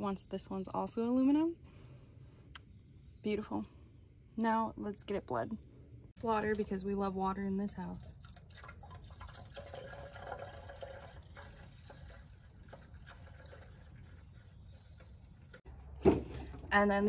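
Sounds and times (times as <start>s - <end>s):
water pouring in thin stream: 6.2s - 14.6s.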